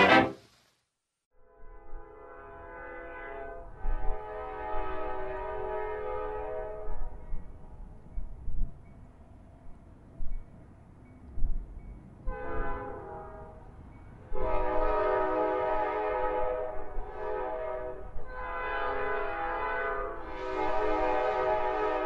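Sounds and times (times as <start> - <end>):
locomotive air horn: 0.0 - 0.4, 1.6 - 7.2, 12.3 - 13.6, 14.3 - 22.0
low rumble of train: 1.4 - 22.0.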